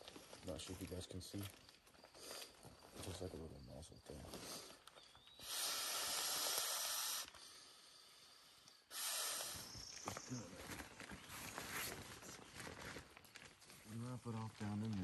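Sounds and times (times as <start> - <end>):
person blowing into inflatable: 5.4 - 7.4, 8.9 - 9.9
inflatable rustling and clicks: 9.9 - 15.0.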